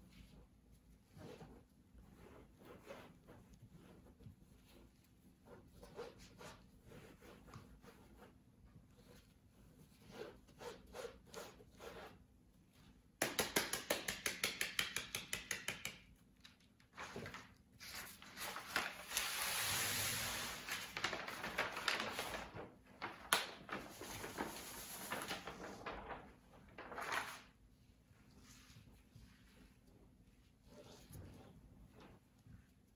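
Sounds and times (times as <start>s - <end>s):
paper rustling: 16.4s - 27.6s.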